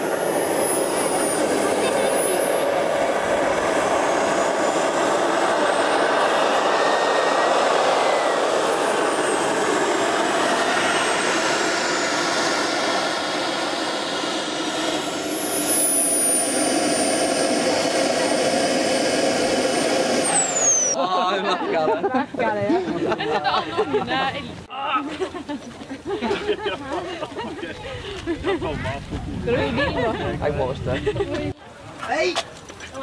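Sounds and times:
high whine: 0.0 - 21.0
model jet engine rushing: 0.0 - 21.0.

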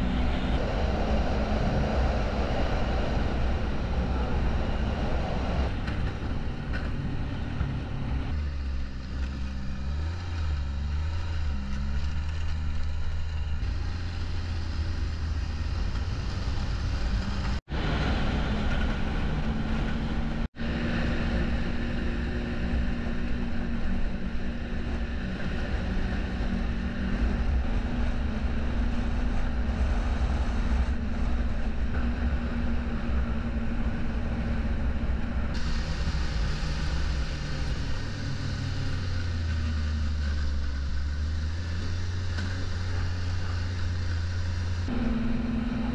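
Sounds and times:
wind rushing: 0.0 - 6.7
snowmobile engine running: 0.0 - 45.9.

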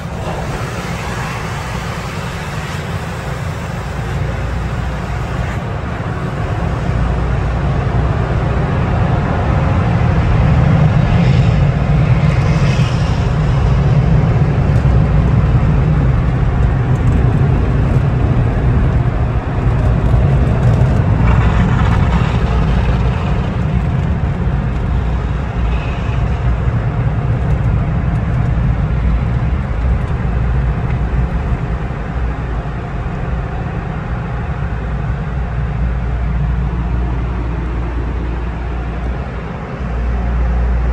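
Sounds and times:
water spraying onto car: 0.0 - 7.3
dryer blowers rumbling: 0.0 - 12.2.

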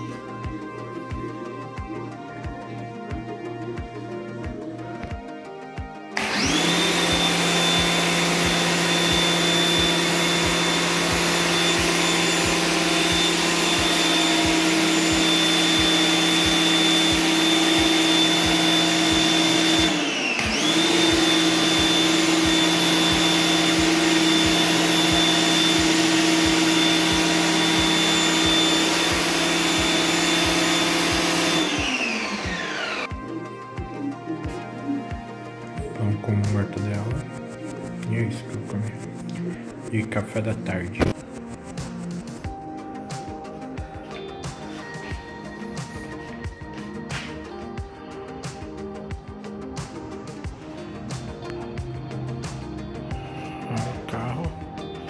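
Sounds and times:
pressure washer motor running: 6.2 - 33.2.

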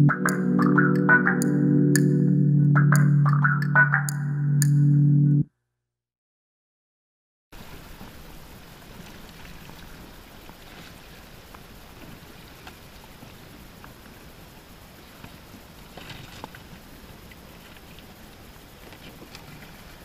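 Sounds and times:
rustle: 7.6 - 20.0
water rushing around boat: 7.6 - 20.0.

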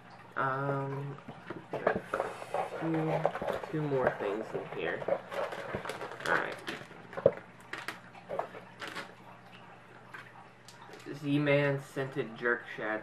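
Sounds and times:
rustling and crinkling packaging: 1.2 - 9.4.

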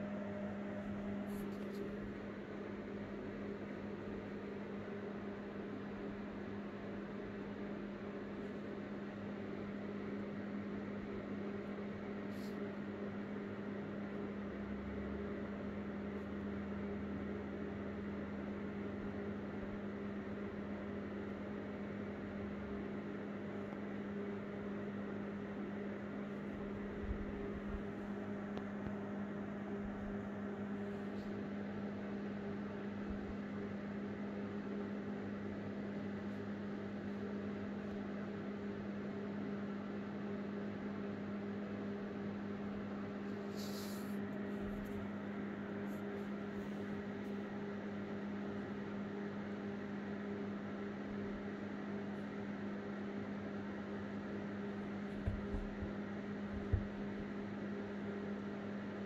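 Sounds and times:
low hum with hiss: 0.0 - 59.0
soft thumps: 55.2 - 57.0.

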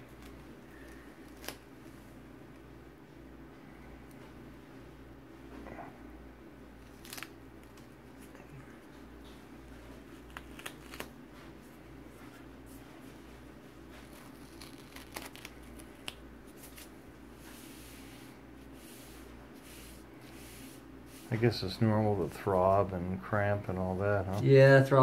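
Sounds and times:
low room hum: 0.0 - 25.0
wrapper crinkling: 14.0 - 16.9.

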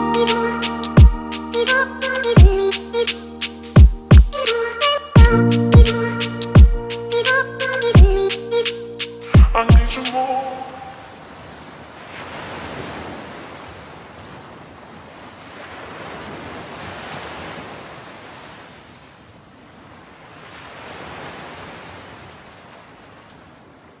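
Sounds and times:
sea waves washing in: 5.3 - 24.0.

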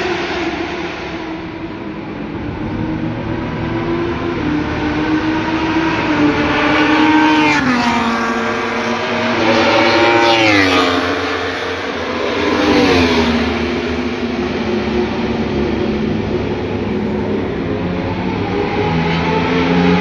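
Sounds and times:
superbikes passing at high revs: 2.7 - 17.6.

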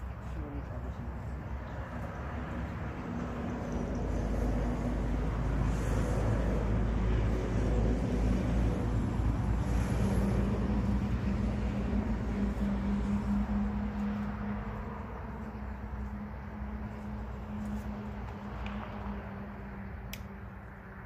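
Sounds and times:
engine running low rumble: 0.0 - 21.0.

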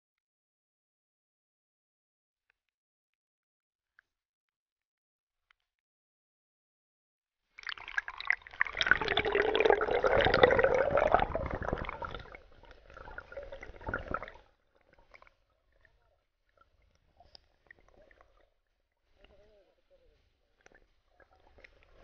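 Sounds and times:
water splashing and gurgling: 7.6 - 19.4
underwater bubbling: 7.6 - 22.0.

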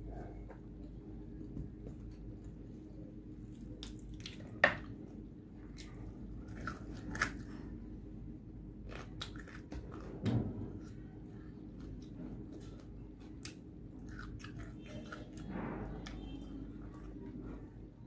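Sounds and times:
crisp crunching while eating: 5.6 - 7.7, 8.8 - 10.2.

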